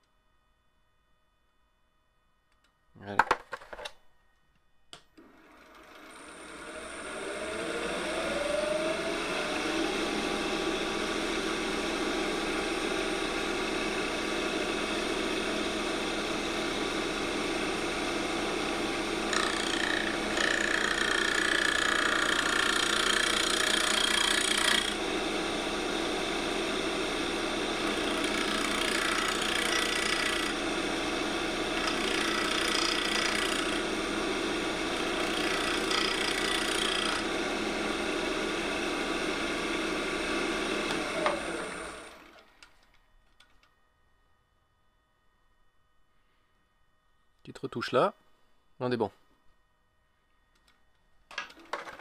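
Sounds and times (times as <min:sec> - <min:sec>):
turning tool cutting wood: 0:05.2 - 0:42.5
wood lathe humming: 0:05.2 - 0:42.5.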